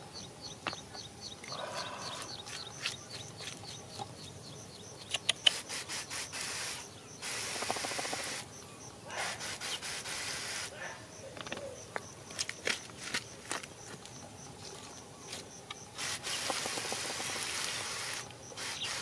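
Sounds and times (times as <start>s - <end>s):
sharp clicks: 5.0s - 5.7s.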